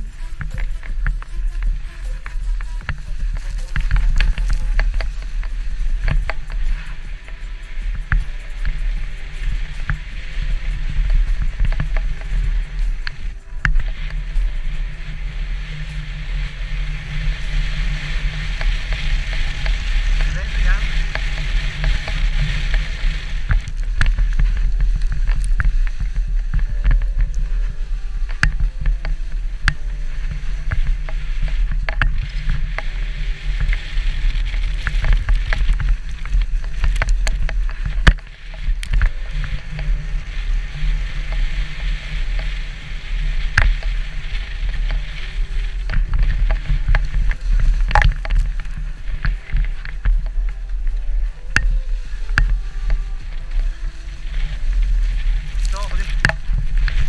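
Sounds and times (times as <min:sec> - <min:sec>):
low rumble: 0:00.0 - 0:57.0
sled knocks and rattles: 0:00.0 - 0:57.0
sled runners hissing on snow: 0:00.0 - 0:57.0.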